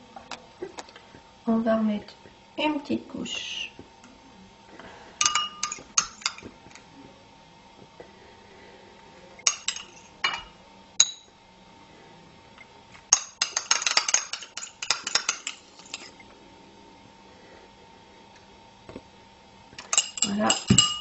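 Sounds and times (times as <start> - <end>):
spoon clinking on tableware: 5.2 - 6.5, 9.5 - 11.3, 13.1 - 16.1, 19.8 - 21.0.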